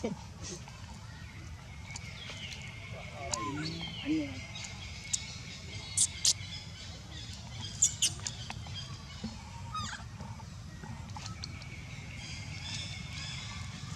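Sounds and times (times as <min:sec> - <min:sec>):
baby monkey squeaking: 0:07.8 - 0:08.3, 0:09.7 - 0:10.0
baby monkey wavering call: 0:09.7 - 0:10.0.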